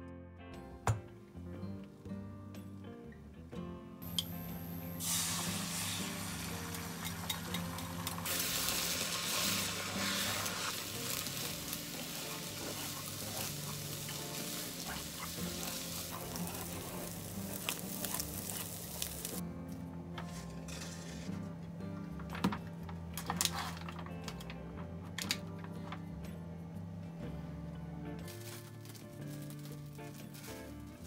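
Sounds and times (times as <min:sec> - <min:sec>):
food sizzling in a pan: 0:04.0 - 0:19.4.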